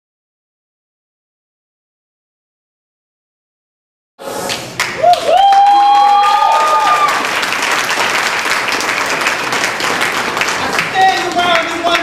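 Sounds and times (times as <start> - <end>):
audience applauding: 4.4 - 12.0
shouted whoops: 5.0 - 7.3.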